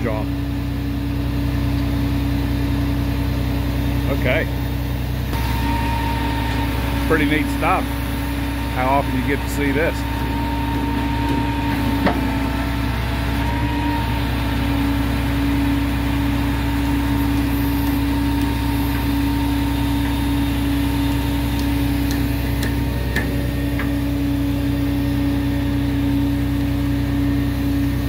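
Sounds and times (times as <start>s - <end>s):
engine idling: 0.0s - 28.0s.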